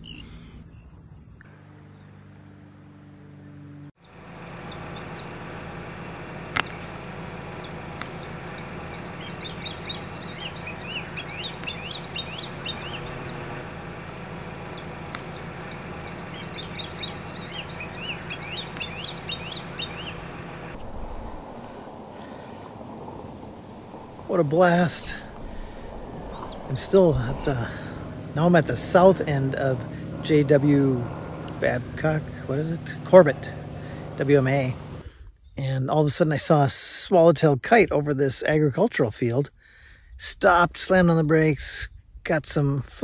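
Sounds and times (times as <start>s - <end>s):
steady low hum: 0.0s - 35.4s
birds whistling calls: 3.4s - 5.4s, 6.4s - 35.6s
sharp click: 6.5s - 6.8s.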